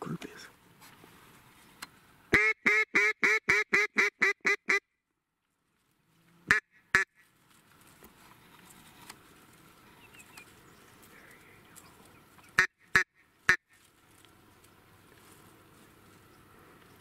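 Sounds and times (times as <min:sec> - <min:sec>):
faint outdoor background: 0:00.0 - 0:17.0.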